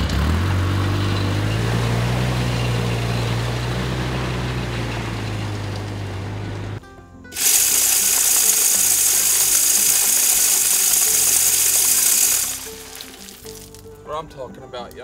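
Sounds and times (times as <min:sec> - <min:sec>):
background music: 0:06.5 - 0:15.0
feeder spinner flinging corn: 0:07.3 - 0:13.8.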